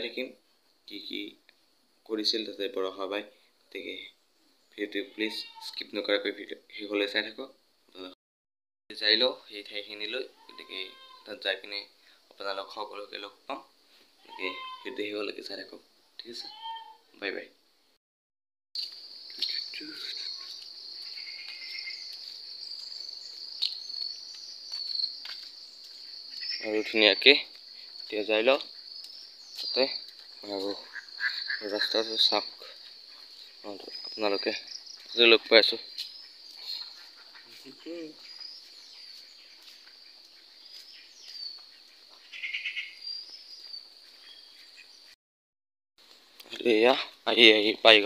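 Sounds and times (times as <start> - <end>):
insects trilling: 18.8 - 45.0.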